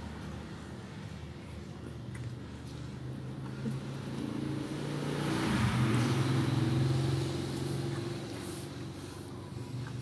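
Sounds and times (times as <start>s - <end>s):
vehicle engine passing by: 2.4s - 10.0s.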